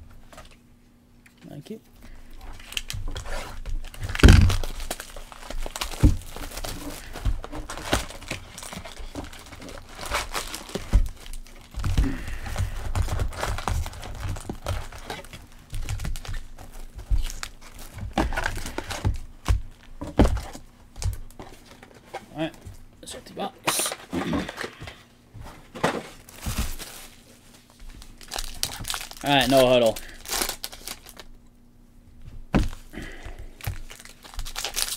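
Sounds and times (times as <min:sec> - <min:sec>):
plastic shrink wrap tearing: 0:02.4 - 0:20.5, 0:26.2 - 0:31.4, 0:33.6 - 0:34.9
cardboard box knocks and thumps: 0:15.7 - 0:21.1, 0:32.5 - 0:32.8.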